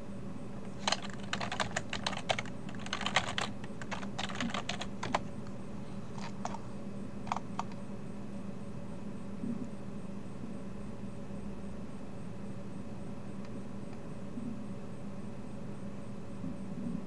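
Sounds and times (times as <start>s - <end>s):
typing on computer keyboard: 0.8s - 5.3s, 6.2s - 6.6s, 7.3s - 7.8s.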